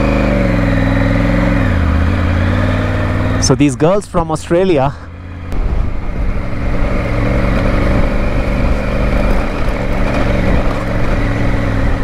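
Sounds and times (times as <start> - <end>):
motorcycle engine running: 0.0 - 12.0
wind rush: 5.5 - 12.0.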